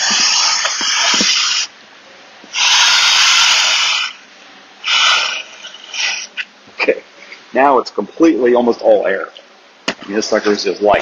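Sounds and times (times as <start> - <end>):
person blowing into air valve: 0.0 - 1.7, 2.5 - 4.2, 4.8 - 6.4.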